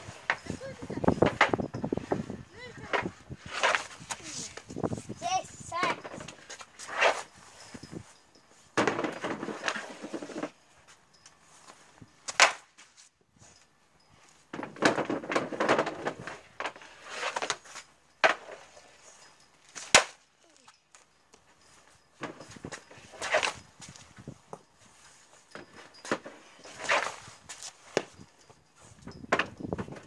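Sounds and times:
clatter and scraping: 0.0s - 5.1s, 8.8s - 10.6s
hockey stick striking: 3.0s - 4.4s, 12.3s - 12.7s, 22.2s - 23.6s, 26.1s - 28.1s.

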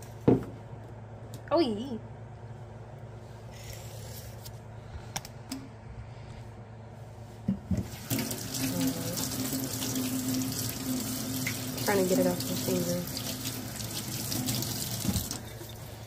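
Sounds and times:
tap running into a sink: 14.2s - 15.5s.

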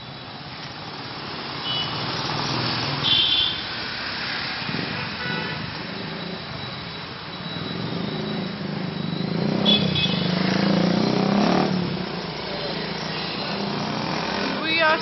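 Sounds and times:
vehicle engine passing: 7.8s - 15.0s.

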